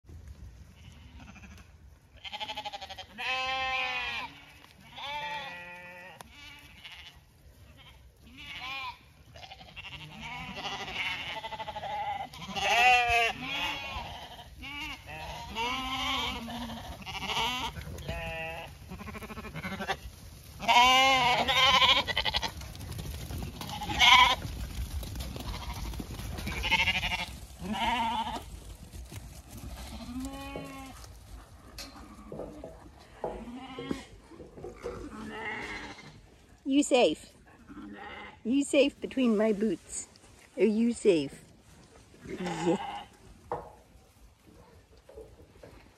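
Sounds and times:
lambs bleating: 0.8 - 22.6, 23.6 - 24.4, 25.4 - 28.5, 29.8 - 31.0, 33.2 - 34.1, 34.7 - 36.2, 37.7 - 38.4, 42.3 - 43.2.

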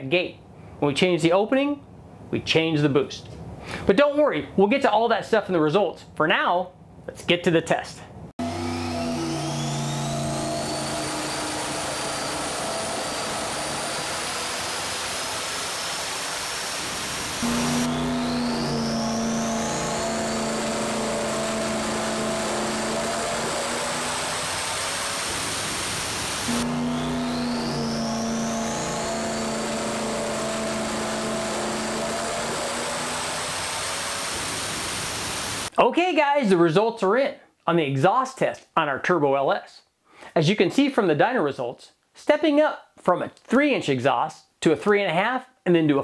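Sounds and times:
engine exhaust and intake rushing: 8.4 - 35.7
turbo whistle rising in pitch: 17.4 - 25.5, 26.4 - 33.9.

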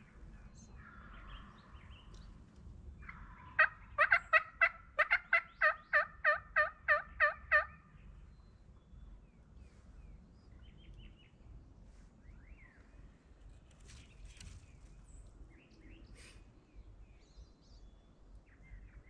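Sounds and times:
turkey yelping: 3.0 - 7.8.

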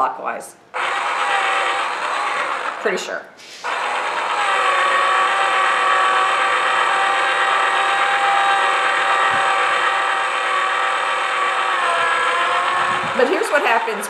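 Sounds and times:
small electric motor whining: 0.7 - 3.0, 3.6 - 14.0.

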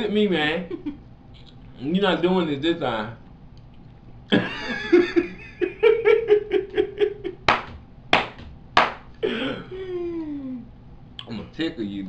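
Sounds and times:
hearty laughter: 4.3 - 7.5.

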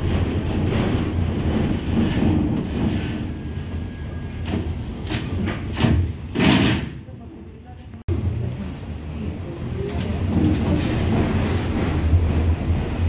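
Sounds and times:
tram interior hum: 0.0 - 13.0
wheel and rail rumble: 0.0 - 13.0
sharp clunks from track: 4.4 - 7.0.

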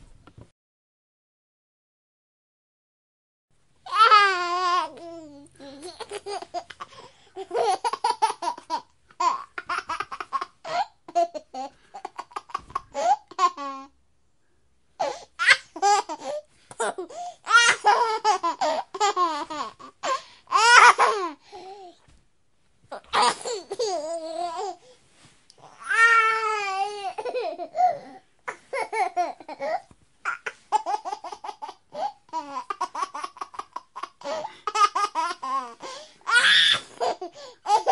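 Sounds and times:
baby laughing: 3.9 - 13.9, 15.0 - 21.4, 22.9 - 24.8, 25.6 - 37.9.

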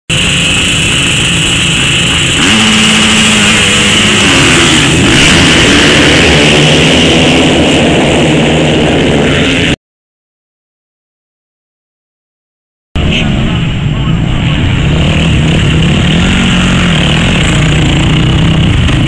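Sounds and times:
motocross bikes revving and accelerating: 0.1 - 9.8, 14.4 - 19.0.

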